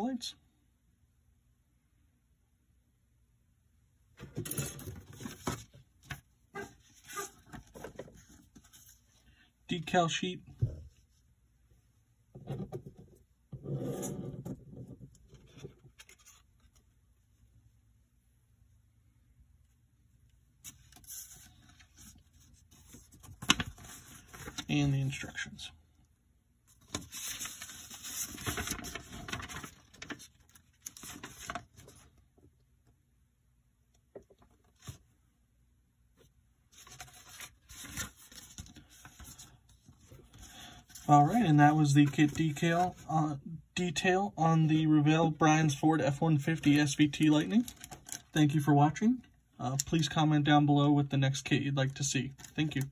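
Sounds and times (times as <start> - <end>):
paper rustling and crinkling: 4.3 - 9.2, 15.3 - 17.0, 20.6 - 25.2, 26.7 - 32.2, 36.7 - 43.1, 47.4 - 48.4, 52.3 - 52.9.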